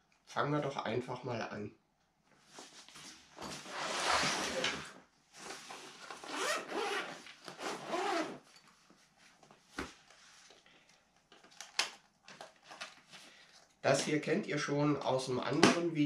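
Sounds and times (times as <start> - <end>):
fabric rubbing and rustling: 2.4 - 10.5
zipper pulled open: 3.6 - 5.0, 5.7 - 8.5.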